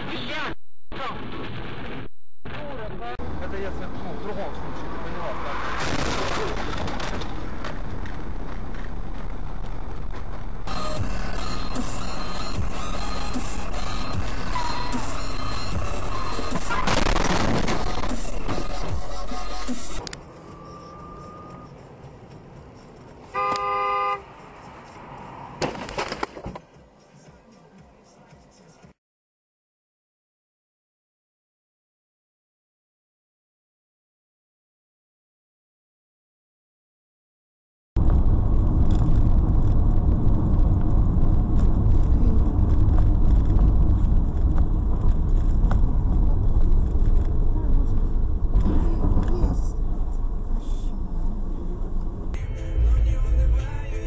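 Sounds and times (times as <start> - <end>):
car driving rumble: 1.2 - 26.6, 38.0 - 54.0
car horn blast: 23.3 - 24.3.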